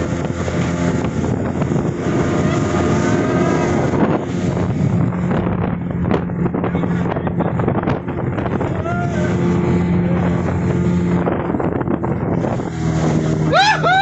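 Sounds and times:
speedboat engine droning: 0:00.0 - 0:14.0
water rushing past hull: 0:00.0 - 0:14.0
wind buffeting microphone: 0:00.0 - 0:14.0.

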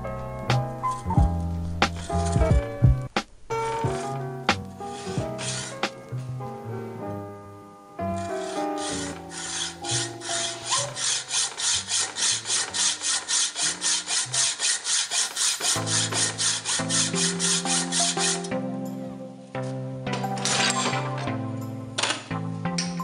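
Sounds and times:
background music: 0:00.0 - 0:23.0
hacksaw cutting metal: 0:01.8 - 0:02.5, 0:04.8 - 0:06.0, 0:08.2 - 0:18.5, 0:20.2 - 0:21.2.

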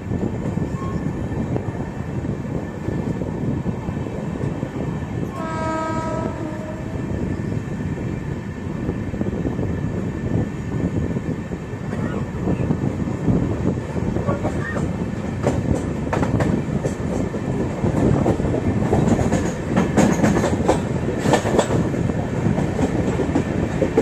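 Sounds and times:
train wheels rumbling: 0:00.0 - 0:24.0
train horn: 0:05.3 - 0:07.2.

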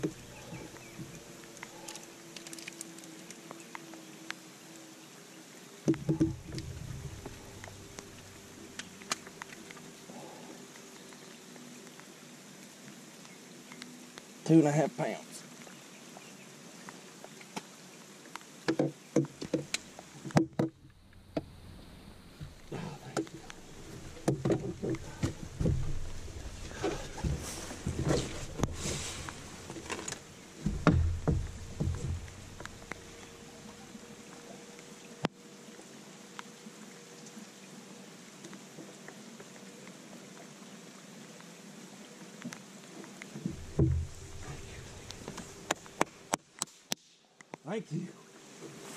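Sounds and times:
rain hiss: 0:00.0 - 0:48.9
knocks on boat deck: 0:05.9 - 0:07.7, 0:24.2 - 0:28.8, 0:30.6 - 0:32.7, 0:43.4 - 0:45.5
drops ticking on boat: 0:22.4 - 0:33.4.

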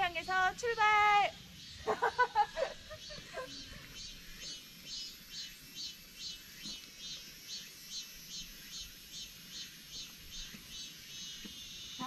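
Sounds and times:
insects buzzing: 0:00.0 - 0:12.0.

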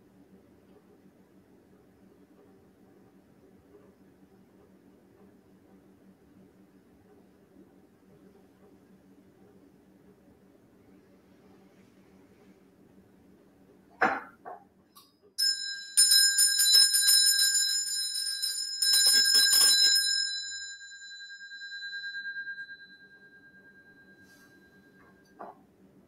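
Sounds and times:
hand bell ringing: 0:15.4 - 0:25.2.

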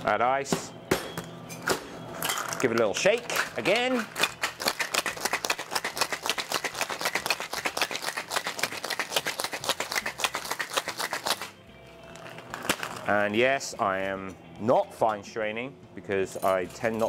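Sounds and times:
ice rattling in cocktail shaker: 0:03.4 - 0:11.5.

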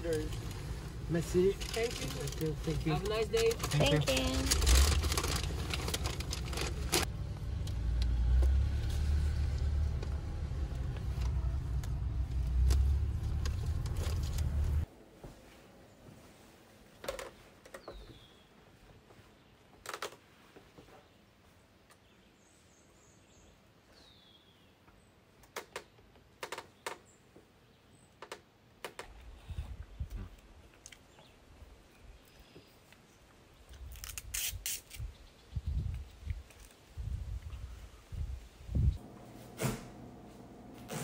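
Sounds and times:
low rumble: 0:04.4 - 0:14.9.

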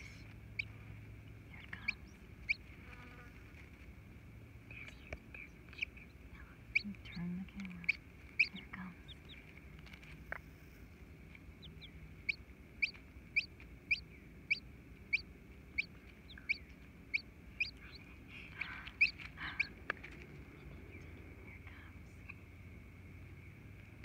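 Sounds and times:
chick peeping: 0:01.6 - 0:03.8, 0:04.8 - 0:10.5, 0:11.4 - 0:21.2
soft scratchy rustling: 0:01.6 - 0:04.1, 0:06.4 - 0:11.6, 0:17.9 - 0:22.4.

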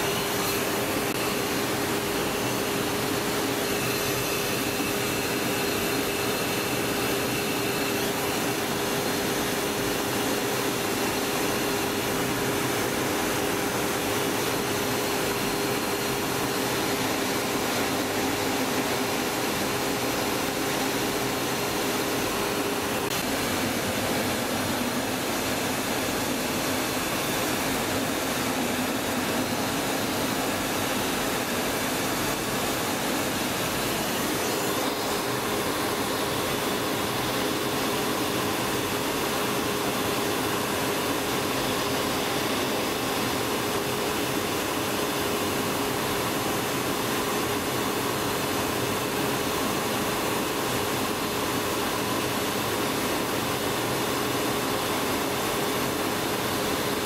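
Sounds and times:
jet engine and airflow roar: 0:00.0 - 0:57.0.

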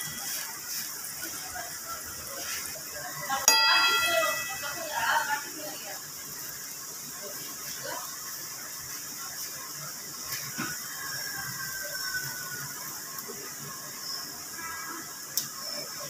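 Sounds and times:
meat sizzling in a pan: 0:00.0 - 0:16.0
faint high squeal: 0:14.0 - 0:16.0.

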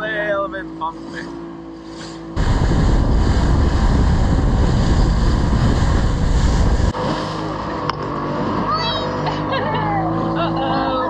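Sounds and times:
boat motor: 0:00.0 - 0:11.0
water: 0:00.0 - 0:11.0
wind buffeting microphone: 0:02.4 - 0:07.1.

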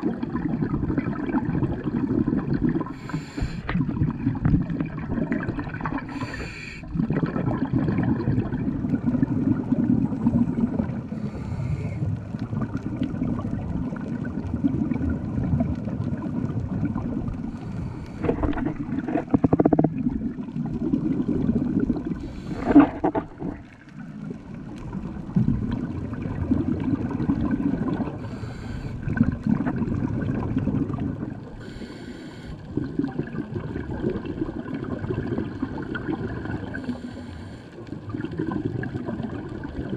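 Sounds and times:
exhaled bubbles rumbling underwater: 0:00.0 - 0:39.9
regulator hiss: 0:03.0 - 0:03.7, 0:06.1 - 0:06.8, 0:31.6 - 0:32.6.

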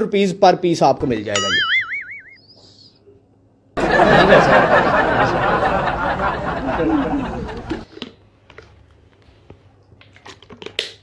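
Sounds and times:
crowd laughter: 0:03.8 - 0:07.9.

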